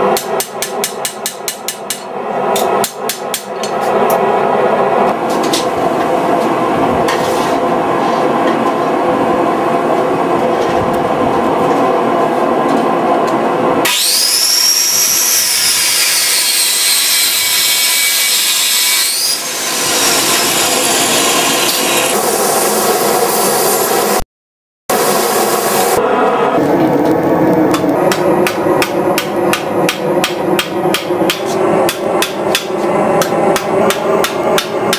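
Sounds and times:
machine drone: 0:00.0 - 0:24.2, 0:24.9 - 0:34.9
chop saw cutting steel: 0:13.8 - 0:22.2
belt grinder grinding steel: 0:13.9 - 0:22.2.

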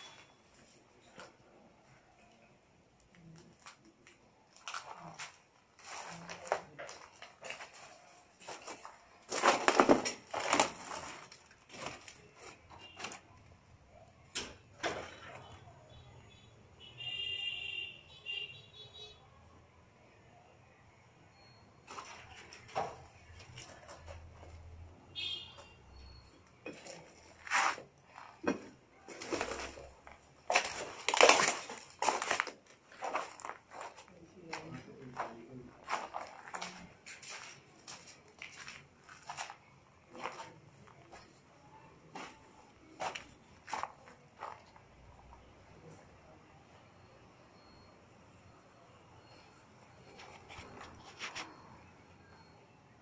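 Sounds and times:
rubble crunching: 0:04.5 - 0:13.4, 0:26.6 - 0:41.4.

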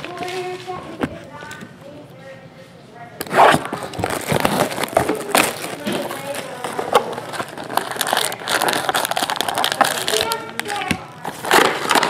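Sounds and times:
shrink wrap tearing and crackling: 0:03.3 - 0:12.0.

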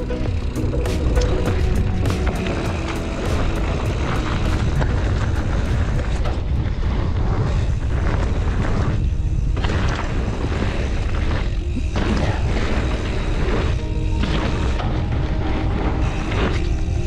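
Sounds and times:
bike tyres on rocky dirt trail: 0:00.0 - 0:17.0
wind buffeting microphone: 0:01.4 - 0:17.0.

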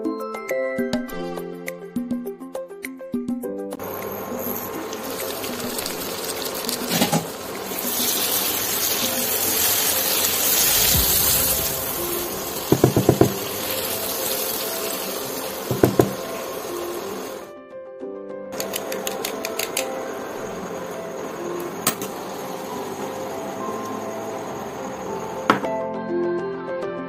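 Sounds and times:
curry sizzling and bubbling: 0:03.8 - 0:17.5, 0:20.0 - 0:25.6
spatula tapping against pan: 0:12.7 - 0:13.5, 0:15.7 - 0:16.2.

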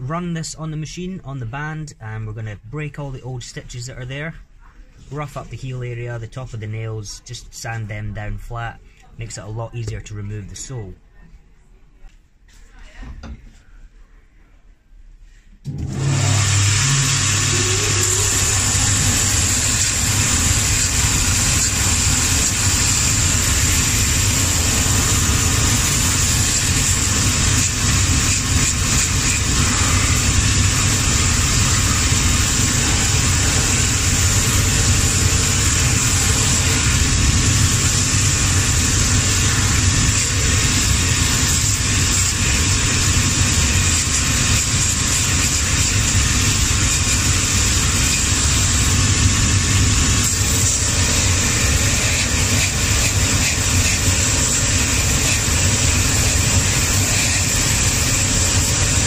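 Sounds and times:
sanding machine motor hum and hiss: 0:15.8 - 0:59.0.

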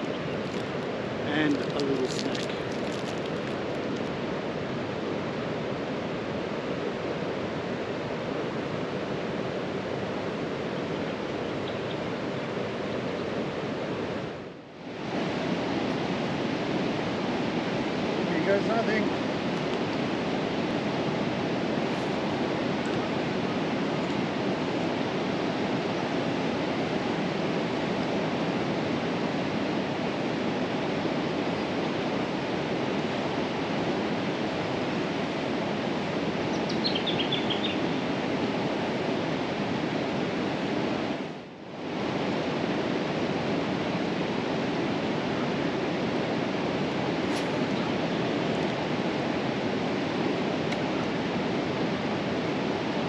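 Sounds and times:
river water rushing: 0:00.0 - 0:53.0
faint bird chirps: 0:36.5 - 0:37.8.

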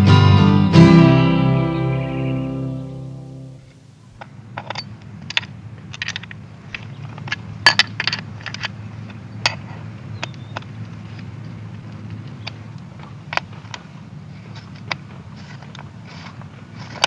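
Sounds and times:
steady low hum: 0:00.0 - 0:17.0
metallic clicks of skateboard parts: 0:04.2 - 0:11.3.

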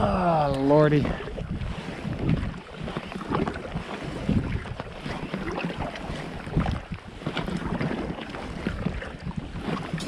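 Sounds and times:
water lapping against canoe: 0:00.0 - 0:10.0
wind gusting over microphone: 0:00.0 - 0:10.0.

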